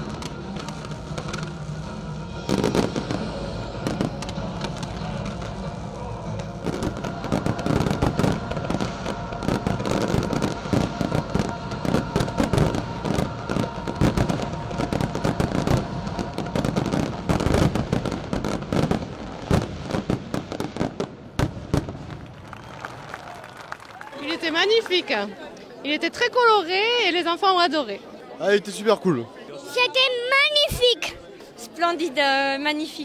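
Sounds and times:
music playing: 0.0s - 19.4s
fireworks bangs and crackling bursts: 0.0s - 23.7s.

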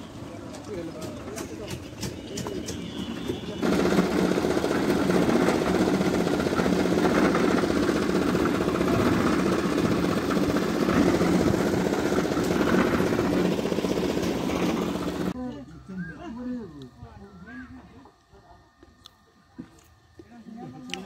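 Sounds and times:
concrete mixer engine chugging: 0.0s - 15.4s.

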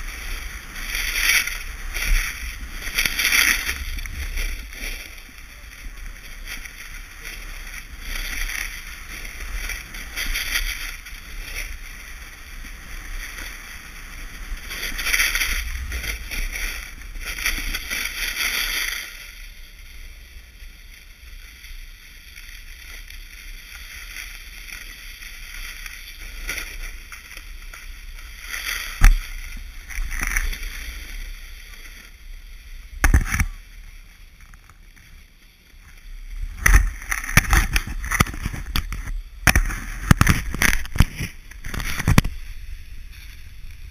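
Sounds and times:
snowboard carving on snow: 0.0s - 43.9s.

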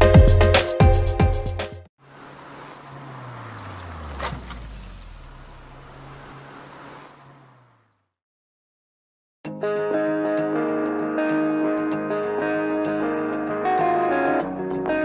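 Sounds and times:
car driving past: 2.0s - 8.2s.

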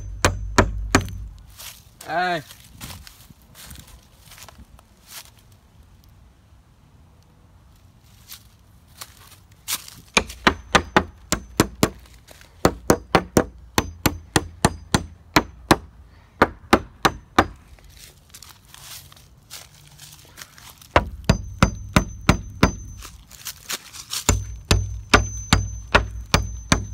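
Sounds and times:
hammer striking nails into wood: 0.0s - 1.4s, 10.2s - 12.0s, 12.6s - 17.6s, 20.9s - 23.0s, 24.3s - 26.9s.

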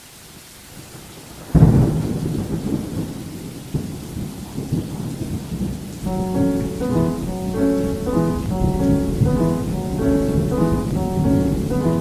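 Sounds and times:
rain hissing: 4.6s - 12.0s.

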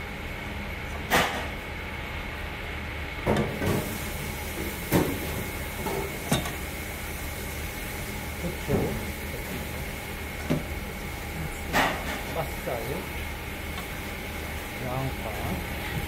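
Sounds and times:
kitchen hum and hiss: 0.0s - 16.0s.

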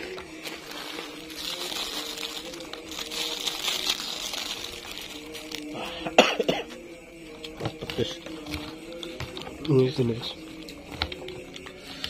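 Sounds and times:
plastic bag crinkling: 0.0s - 5.8s
crackers crushed by hand: 0.0s - 6.8s.

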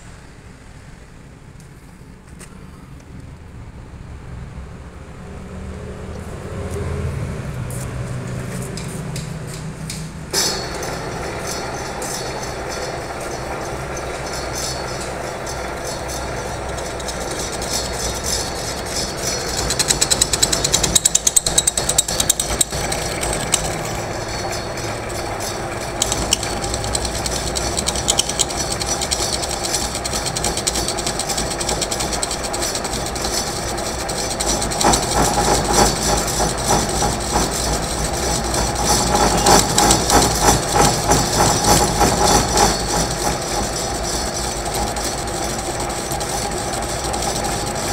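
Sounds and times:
fast rattling clatter: 10.3s - 47.9s
metal lathe whirring: 10.3s - 47.9s.

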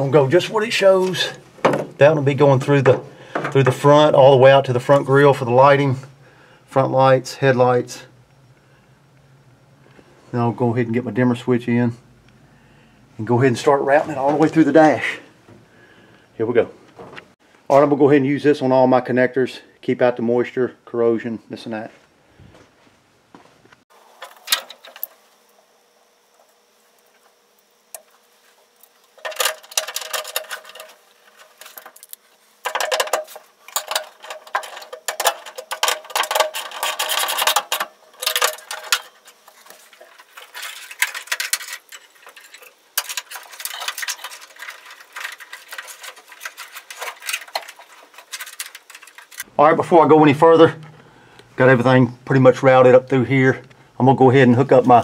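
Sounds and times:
wires rustling: 0.0s - 5.9s, 23.9s - 49.5s.

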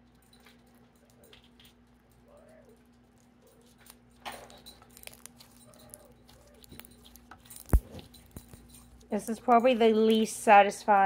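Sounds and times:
slime squished by hand: 5.0s - 8.4s.

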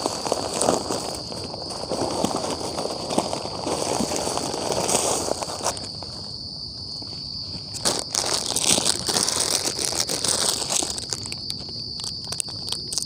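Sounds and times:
night insects trilling: 0.0s - 13.0s
plastic wrapper crinkling: 7.8s - 13.0s.

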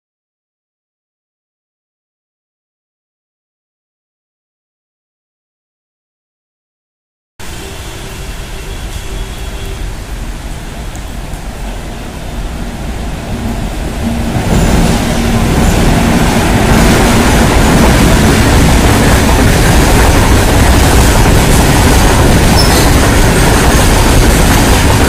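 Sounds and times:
electric locomotive passing: 7.4s - 25.0s.

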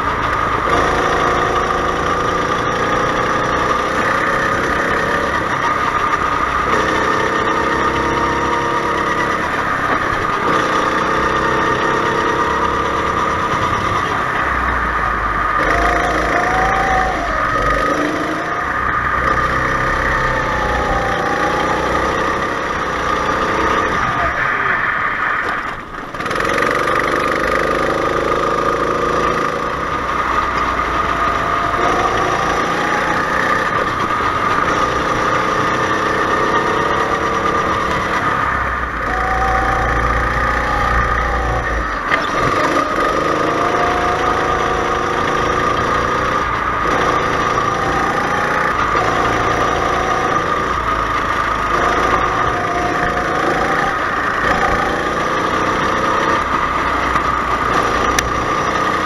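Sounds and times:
go-kart engine revving: 0.0s - 59.0s
steady high tone: 7.6s - 26.0s, 36.5s - 45.0s.

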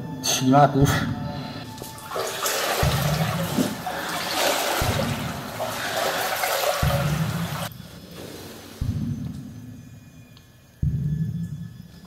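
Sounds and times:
heavy splashing steps: 1.7s - 7.7s
feet wading through water: 1.8s - 7.7s.

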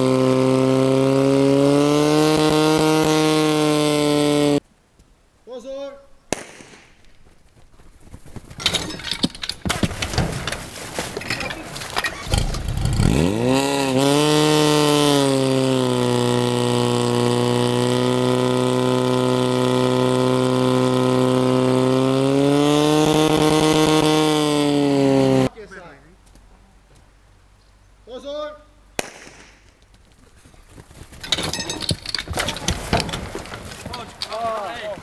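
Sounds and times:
pump engine revving: 0.0s - 4.6s, 11.3s - 25.5s
hoses knocking and clattering: 8.5s - 13.0s, 31.0s - 35.0s.

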